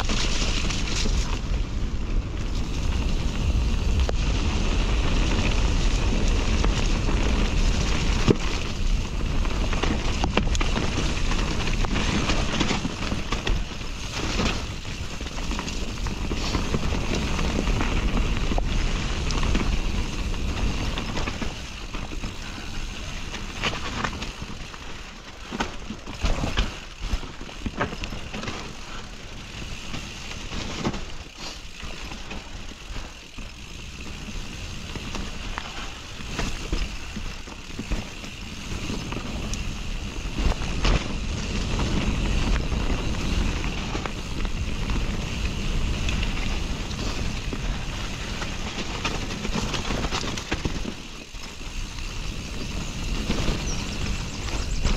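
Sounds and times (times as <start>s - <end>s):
bike rattling clicks and knocks: 0.0s - 54.9s
bike tyres rolling over dirt: 0.0s - 54.9s.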